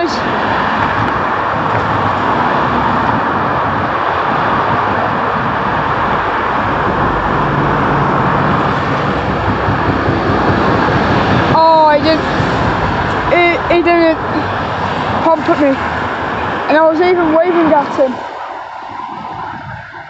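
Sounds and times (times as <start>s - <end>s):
steady rushing noise: 0.0s - 20.0s.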